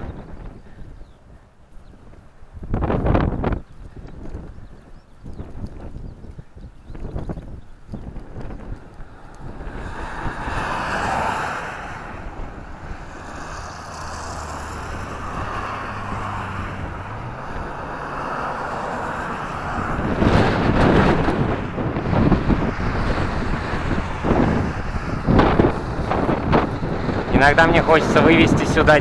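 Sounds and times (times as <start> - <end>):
road traffic passing: 0.0 - 29.0
wind buffeting microphone: 0.0 - 29.0
low engine hum: 7.2 - 29.0.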